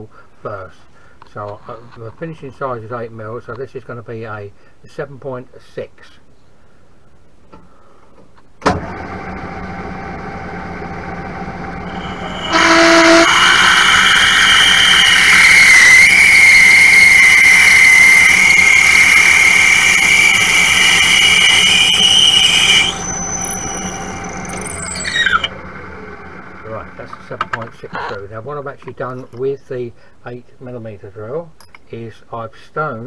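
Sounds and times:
lathe humming: 0:08.9 - 0:28.1
drill squealing into metal: 0:11.8 - 0:27.7.

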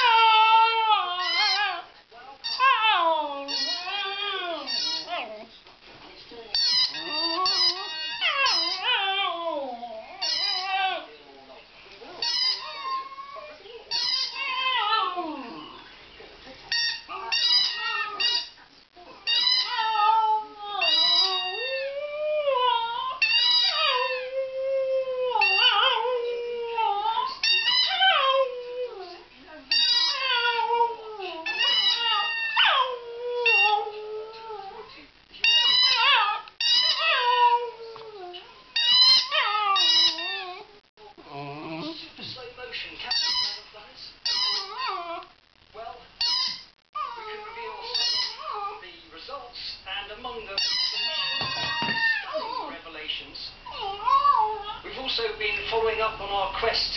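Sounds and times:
dog howling and whining: 0:00.0 - 0:01.9, 0:02.6 - 0:05.5, 0:06.9 - 0:11.1, 0:14.2 - 0:15.7, 0:17.1 - 0:18.4, 0:19.2 - 0:42.0, 0:44.5 - 0:45.3, 0:47.0 - 0:48.8, 0:50.9 - 0:52.8, 0:53.7 - 0:54.8
squeaky toy squeaks: 0:01.1 - 0:01.8, 0:02.4 - 0:05.4, 0:06.5 - 0:09.1, 0:10.2 - 0:11.0, 0:12.2 - 0:13.2, 0:13.9 - 0:15.0, 0:16.7 - 0:18.6, 0:19.2 - 0:20.2, 0:20.8 - 0:21.9, 0:23.2 - 0:24.2, 0:25.4 - 0:26.0, 0:27.2 - 0:28.2, 0:29.7 - 0:30.7, 0:31.5 - 0:32.9, 0:35.4 - 0:37.6, 0:38.7 - 0:40.6, 0:43.1 - 0:45.1, 0:46.2 - 0:46.7, 0:47.8 - 0:48.6, 0:50.6 - 0:52.6.

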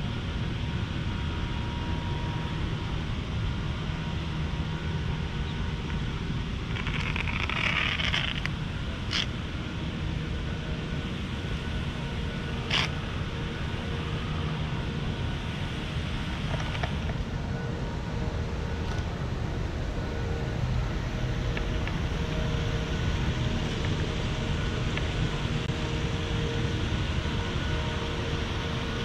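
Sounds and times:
low outdoor background rumble: 0:00.0 - 0:29.0.

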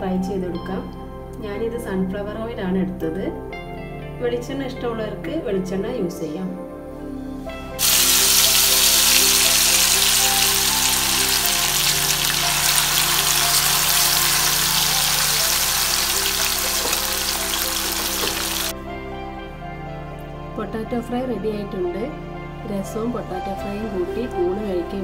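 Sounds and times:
potatoes sizzling in hot oil: 0:07.8 - 0:18.7.

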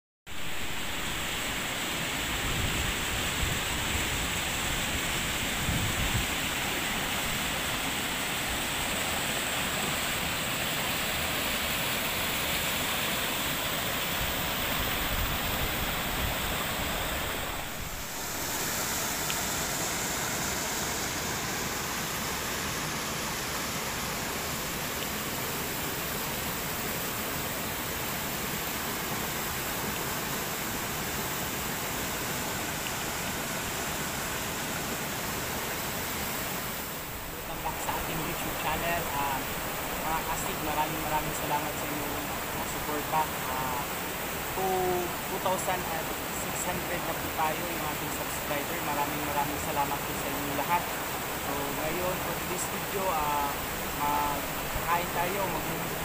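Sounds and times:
river water rushing over boulders: 0:00.3 - 0:56.0.

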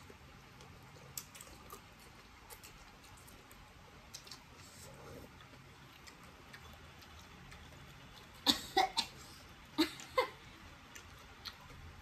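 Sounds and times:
woman coughing: 0:08.5 - 0:09.2.

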